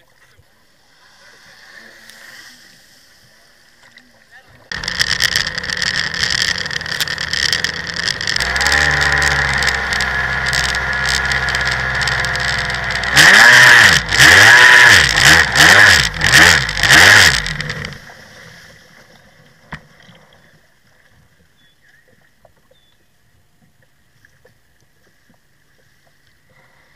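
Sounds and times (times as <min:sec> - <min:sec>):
jet ski engine revving: 0:04.7 - 0:18.2.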